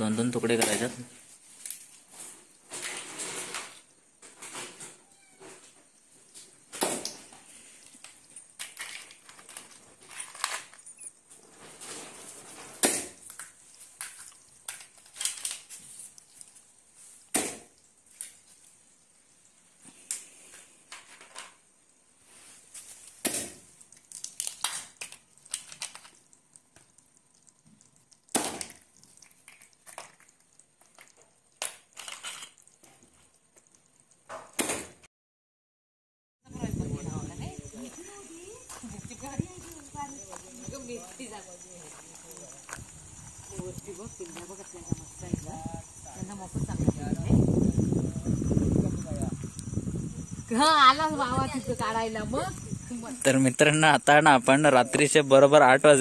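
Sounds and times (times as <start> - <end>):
shell cracking: 7.8 - 11.0, 12.7 - 16.6, 23.2 - 33.0.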